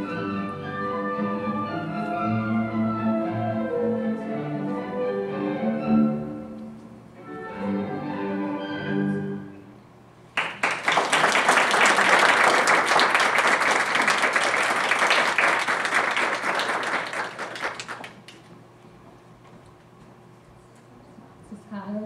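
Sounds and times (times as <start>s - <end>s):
music: 0.0s - 9.9s
audience applauding: 10.4s - 18.5s.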